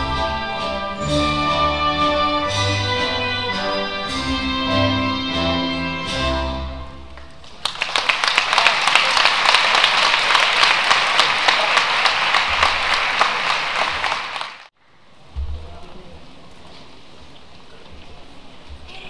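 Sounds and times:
audience applause: 7.4 - 14.7.

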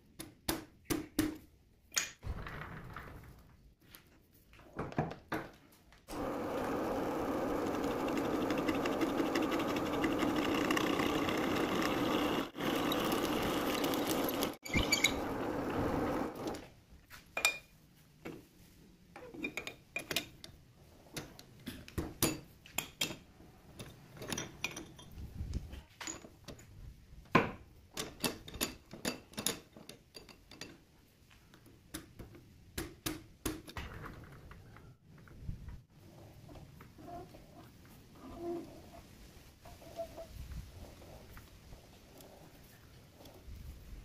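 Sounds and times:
metal lathe drilling: 6.1 - 16.4
metal parts clicking and knocking: 19.3 - 25.2, 27.9 - 30.9.

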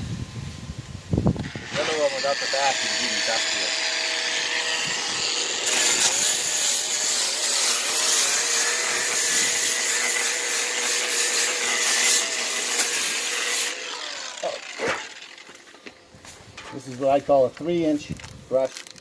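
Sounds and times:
angle grinder motor whine: 1.3 - 16.0.

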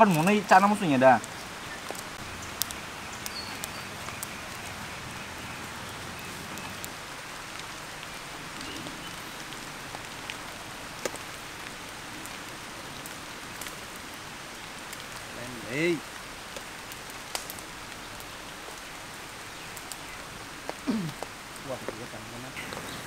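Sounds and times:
wood fire crackling: 0.0 - 23.0
sharp pops from fire: 1.2 - 4.8, 6.5 - 12.4, 13.0 - 14.1, 16.5 - 23.0.

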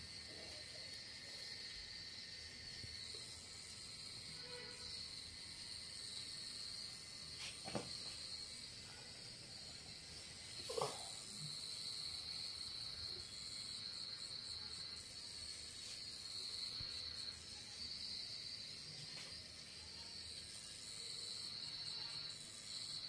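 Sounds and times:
tattoo machine whining: 0.0 - 23.0.

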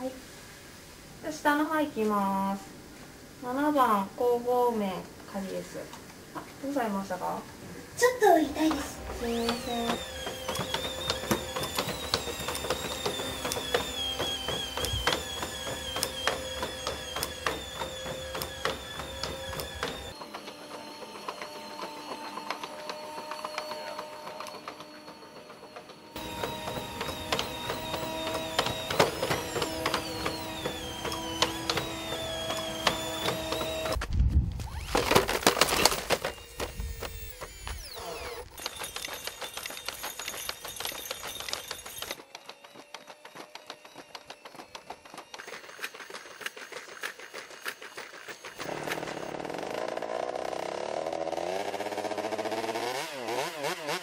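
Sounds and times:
hydraulic pump whining: 8.0 - 53.4
combustion engine running: 8.6 - 34.0, 48.4 - 53.4.

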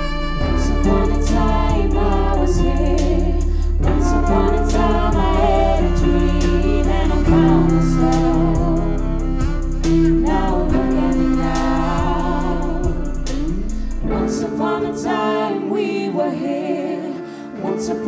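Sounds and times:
live band playing: 0.0 - 14.3
voices singing together: 0.0 - 18.0.

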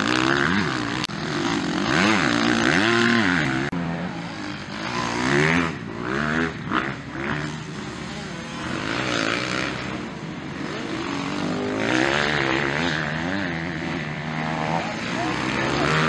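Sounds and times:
dirt bike engines revving: 0.0 - 16.0.

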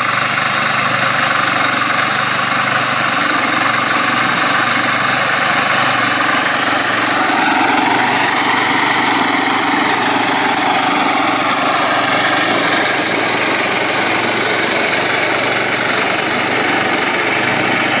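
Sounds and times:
flail mulcher cutting grass: 0.0 - 18.0.

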